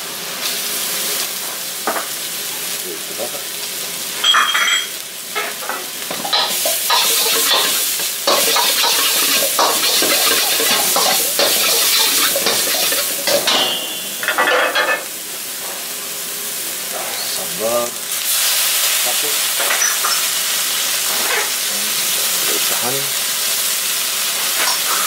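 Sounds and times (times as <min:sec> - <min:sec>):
food sizzling in hot oil: 0:00.0 - 0:25.0
ringing metallic clink: 0:04.2 - 0:04.9, 0:08.3 - 0:14.9
ladle scraping a wok: 0:06.2 - 0:15.0.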